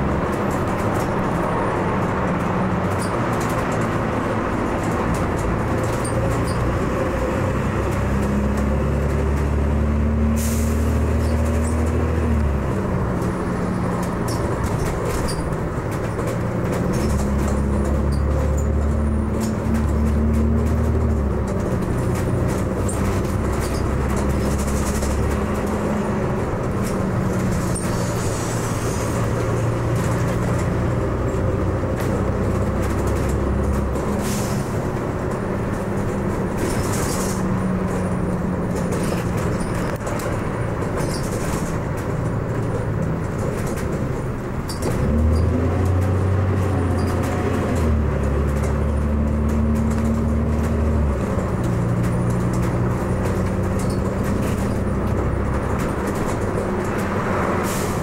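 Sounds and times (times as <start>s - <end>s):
bus engine changing gear: 0.0s - 58.0s
bodywork rattles and knocks: 11.2s - 28.2s, 34.8s - 57.6s.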